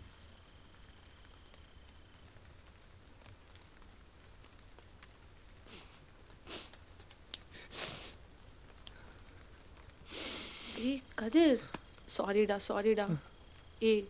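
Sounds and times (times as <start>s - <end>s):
low room hum: 0.0s - 14.0s
person sniffling: 5.7s - 6.8s, 7.5s - 8.2s, 10.1s - 10.9s.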